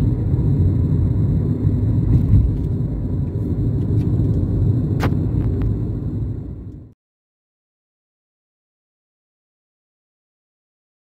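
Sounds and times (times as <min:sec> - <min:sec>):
car driving rumble: 0:00.0 - 0:07.0.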